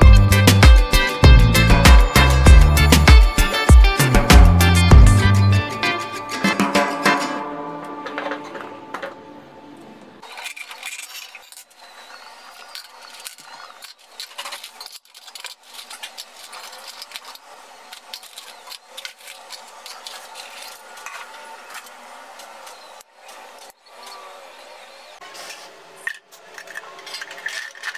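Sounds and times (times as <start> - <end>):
charcoal clinking into a metal can: 10.2 - 22.9, 25.4 - 27.9
rustling: 10.2 - 24.2.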